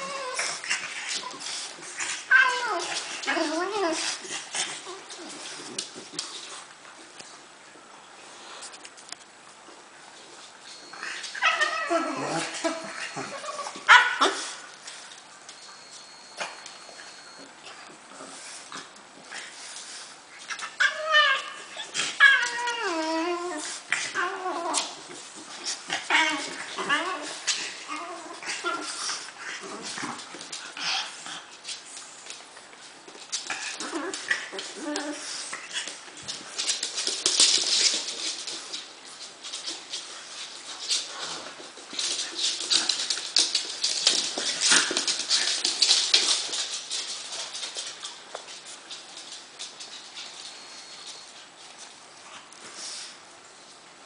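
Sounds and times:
puppy whining: 0.0 - 5.7, 10.8 - 14.6, 20.6 - 25.1, 25.9 - 31.2, 33.5 - 36.0
puppy noises: 0.0 - 6.0, 33.4 - 38.8
claws scrabbling on wooden floor: 31.6 - 52.0.

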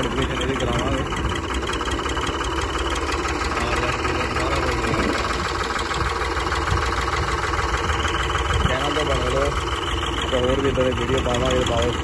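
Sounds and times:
tractor diesel engine idling: 0.0 - 12.0.

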